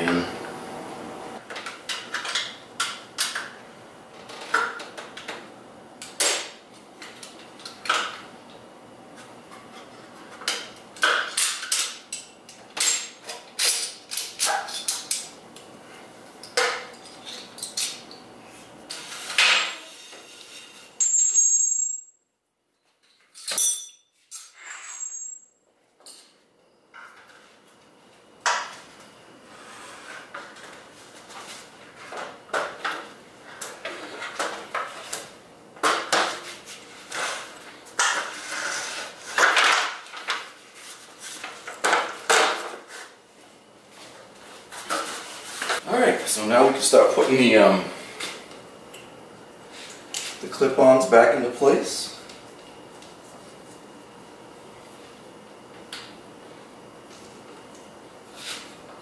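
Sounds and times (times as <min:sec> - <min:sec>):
tools and metal parts clinking: 0:21.0 - 0:22.2, 0:23.0 - 0:26.3.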